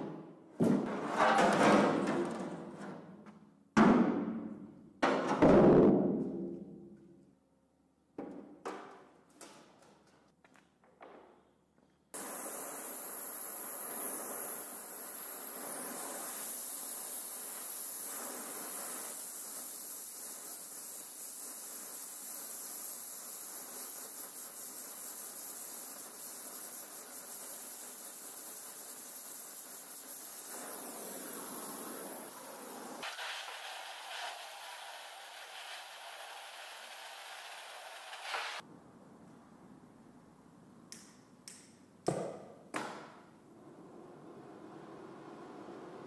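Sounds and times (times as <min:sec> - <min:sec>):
welding torch flame hissing: 0:12.2 - 0:38.6.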